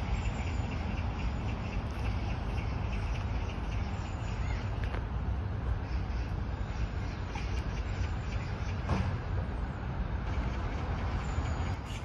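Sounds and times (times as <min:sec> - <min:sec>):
constant low rumble: 0:00.0 - 0:12.0.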